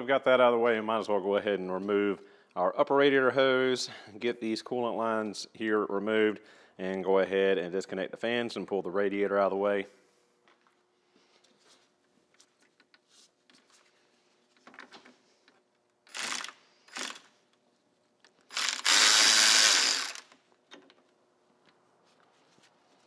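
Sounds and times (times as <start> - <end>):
cordless power driver spinning: 16.1 - 17.3, 18.5 - 20.4.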